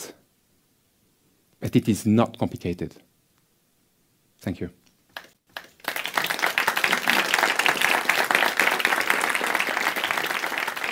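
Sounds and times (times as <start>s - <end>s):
audience applauding: 5.2s - 10.9s.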